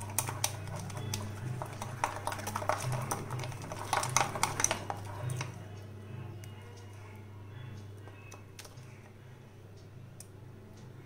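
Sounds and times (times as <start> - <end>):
spoon scraping bowl: 0.0 - 5.6.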